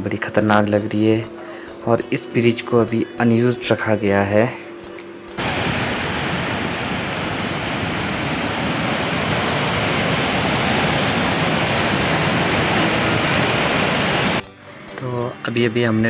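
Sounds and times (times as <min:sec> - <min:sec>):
rushing white water: 0:05.4 - 0:14.4.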